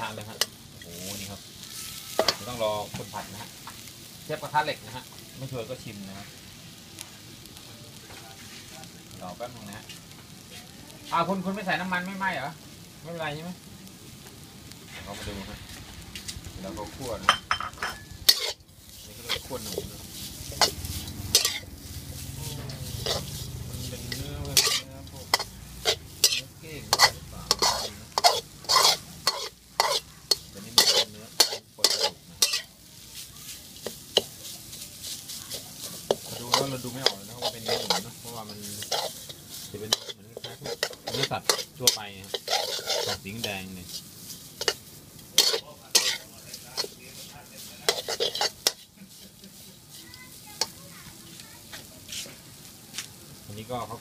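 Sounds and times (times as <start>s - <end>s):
metal spatula scraping wok: 0.0s - 4.9s, 14.8s - 52.5s
faint sizzle: 0.0s - 54.0s.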